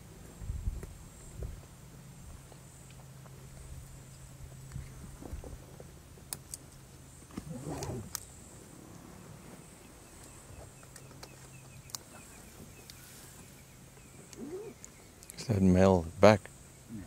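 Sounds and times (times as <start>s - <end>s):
steady low hum: 0.0s - 17.0s
lion call: 7.4s - 8.2s, 14.3s - 14.9s.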